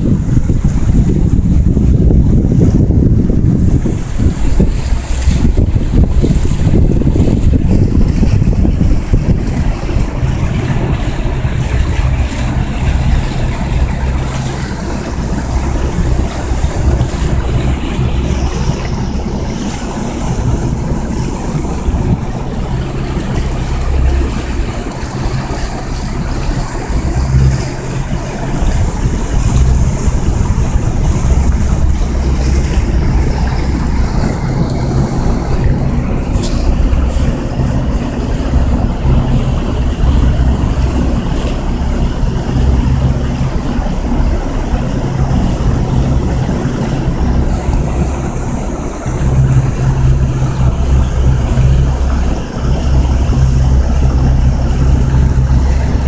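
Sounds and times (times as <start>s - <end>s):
motorboat engine: 0.0s - 56.0s
rushing water: 0.0s - 56.0s
wind buffeting microphone: 0.0s - 56.0s.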